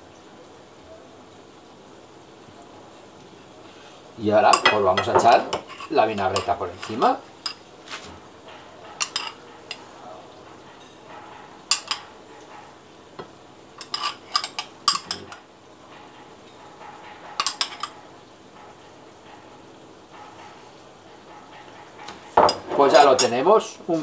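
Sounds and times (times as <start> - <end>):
metal spoon clinking on ceramic bowl: 4.5 - 7.6, 8.8 - 9.9, 10.7 - 12.1, 13.8 - 15.5, 16.5 - 18.0, 21.6 - 23.4.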